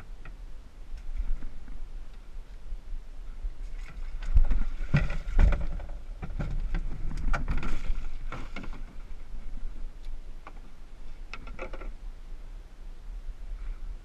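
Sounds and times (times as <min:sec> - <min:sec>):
water sloshing: 0:03.6 - 0:11.9.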